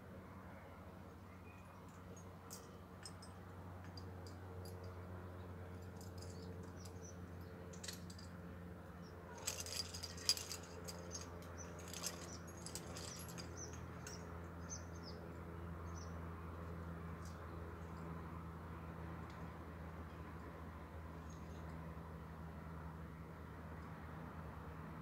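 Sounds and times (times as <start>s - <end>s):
metal climbing gear clinking: 1.5s - 8.4s, 9.2s - 15.1s.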